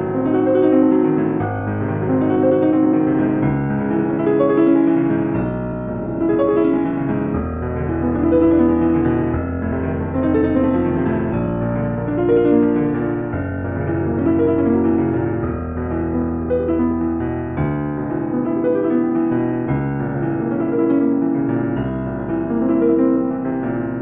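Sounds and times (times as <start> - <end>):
slow piano music: 0.0 - 24.0.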